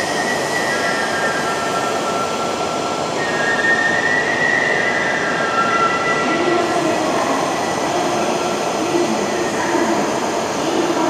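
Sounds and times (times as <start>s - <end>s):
steady train rumble: 0.0s - 11.0s
train electrical equipment whining: 0.0s - 11.0s.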